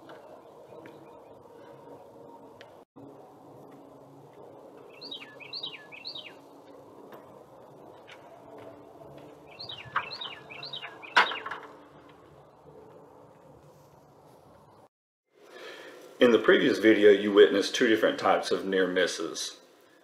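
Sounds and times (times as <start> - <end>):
songbird singing: 0.0 - 2.4, 4.7 - 6.9, 7.8 - 12.6.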